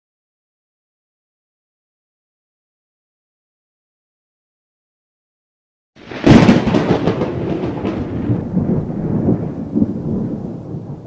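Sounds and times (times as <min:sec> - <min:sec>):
loud crack: 0:06.0 - 0:09.9.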